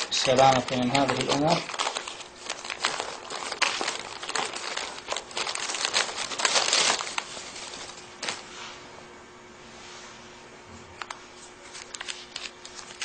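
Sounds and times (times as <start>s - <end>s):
crinkly wrapping rustling: 0.0s - 8.5s, 11.7s - 13.0s.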